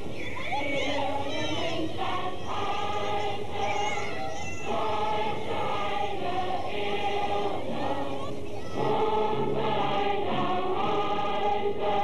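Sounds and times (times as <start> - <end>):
choir singing: 0.0 - 12.0.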